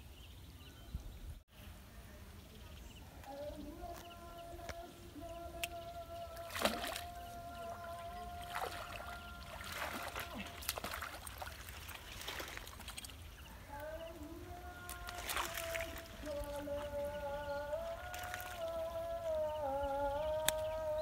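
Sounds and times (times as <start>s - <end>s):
fish splashing at water surface: 5.7s - 13.2s, 14.6s - 17.2s, 17.8s - 19.2s.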